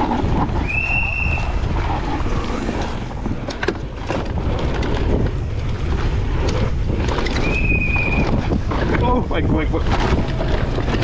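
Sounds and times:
bike rattling over rough track: 0.0s - 11.0s
wind buffeting microphone: 0.0s - 11.0s
high squeal: 0.6s - 1.6s, 7.3s - 8.4s.

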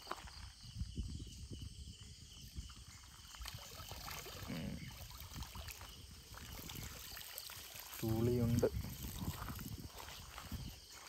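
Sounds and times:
net hauled through water: 3.1s - 11.0s
water splashing off net: 3.4s - 10.6s.

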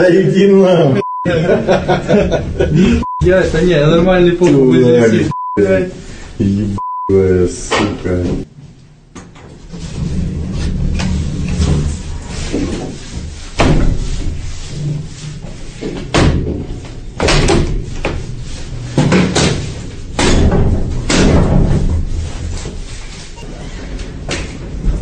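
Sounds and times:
rough scraping on floor: 9.7s - 15.8s.

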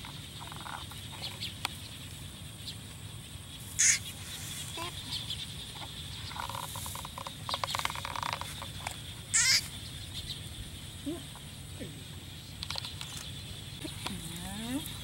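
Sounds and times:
warbling bird call: 3.7s - 8.6s, 9.3s - 10.2s.

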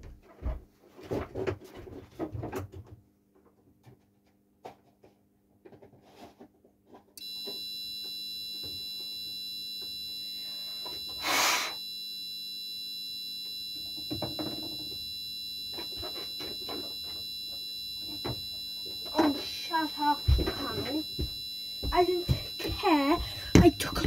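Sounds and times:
fire alarm continuous tone: 7.2s - 24.0s.

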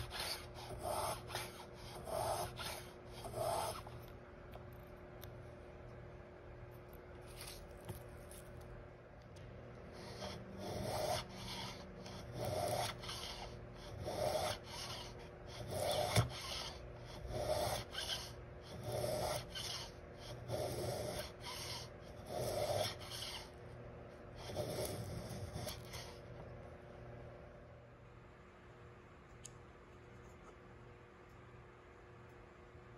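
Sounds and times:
hand plane shaving wood: 15.6s - 19.9s.

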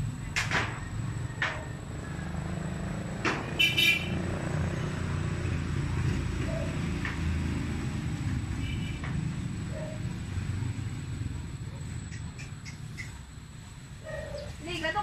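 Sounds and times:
vehicle engine rumbling: 0.0s - 15.0s
sharp knocks: 3.2s - 3.6s.

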